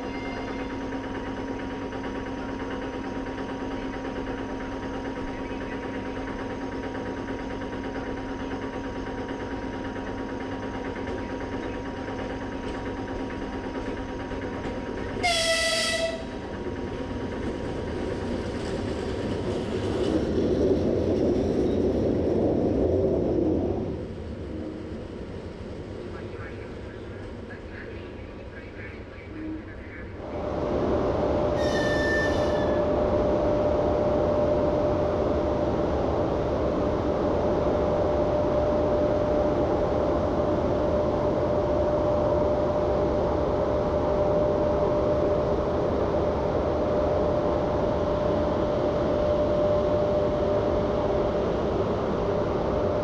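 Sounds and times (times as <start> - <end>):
approaching train rumble: 0.0 - 53.0
electric hum of trains: 0.0 - 53.0
locomotive horn blast: 15.2 - 16.4, 31.6 - 32.8.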